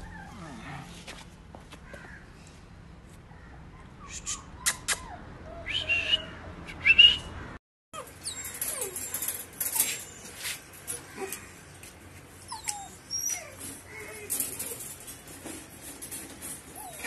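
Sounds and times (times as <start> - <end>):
puppies whimpering: 8.0 - 11.6, 12.3 - 15.1, 15.8 - 17.0.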